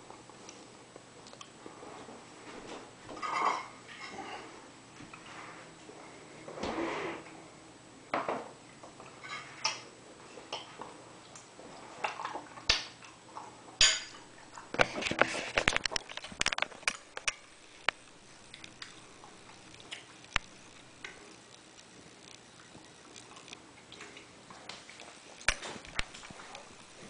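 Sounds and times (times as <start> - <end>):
dishes and cutlery clattering: 3.2 - 4.5, 13.8 - 17.4.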